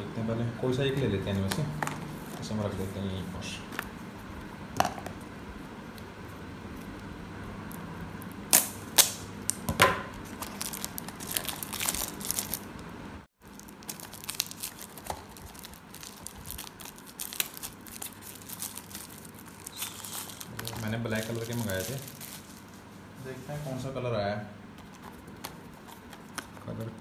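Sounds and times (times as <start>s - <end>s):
plastic wrap crinkling and tearing: 10.1s - 12.8s, 13.4s - 22.7s, 24.8s - 27.0s.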